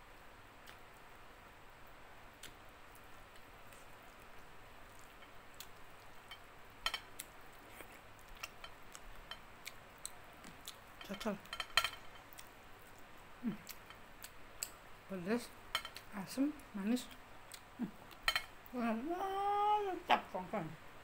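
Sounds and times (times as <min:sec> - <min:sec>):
person humming: 0:13.4 - 0:13.7, 0:17.8 - 0:18.0, 0:18.7 - 0:20.7.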